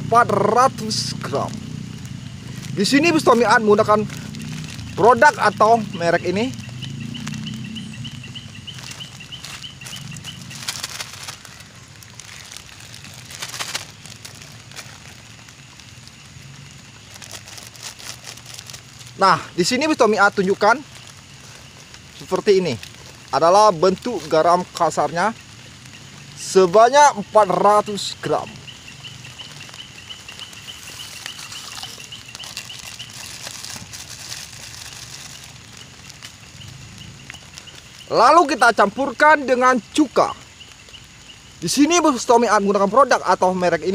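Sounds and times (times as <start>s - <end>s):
steady high chirping: 0.0s - 12.6s, 23.3s - 33.6s
plastic bag crinkling: 0.6s - 25.2s, 27.4s - 38.1s.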